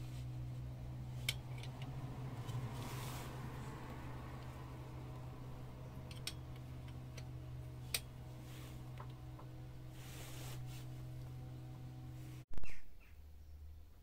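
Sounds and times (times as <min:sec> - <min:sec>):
steady low hum: 0:00.0 - 0:12.5
metallic ticks of hand tool: 0:06.0 - 0:07.3.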